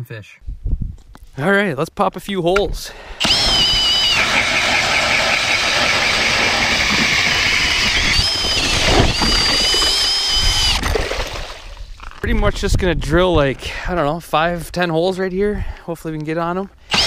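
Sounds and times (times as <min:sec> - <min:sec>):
drill auger grinding through ice: 0:03.2 - 0:11.4.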